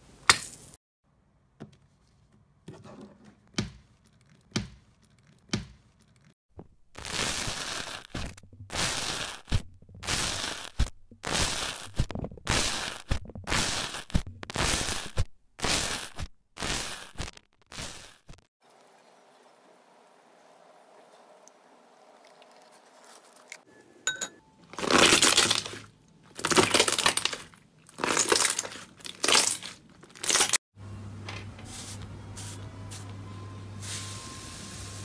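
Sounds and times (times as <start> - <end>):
crunchy slime crackling: 24.7 - 30.6.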